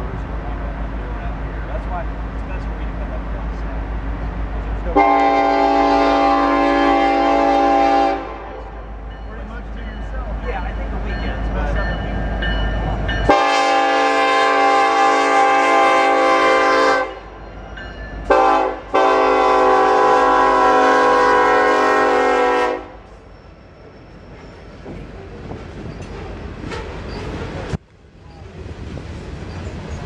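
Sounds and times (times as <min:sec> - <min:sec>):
locomotive rumble: 0:00.0 - 0:30.0
train rolling past: 0:00.0 - 0:30.0
locomotive air horn blasts: 0:05.0 - 0:08.8, 0:13.3 - 0:17.4, 0:18.3 - 0:23.1.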